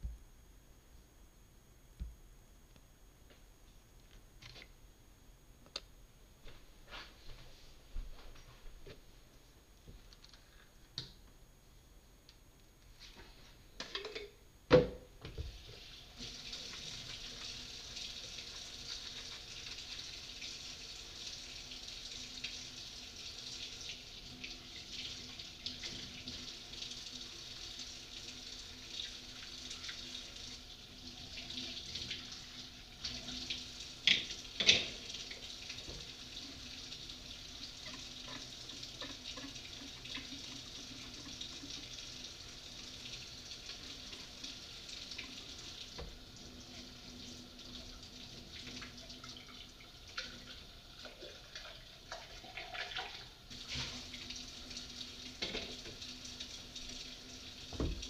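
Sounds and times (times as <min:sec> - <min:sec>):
faucet running: 0:15.4 - 0:58.0.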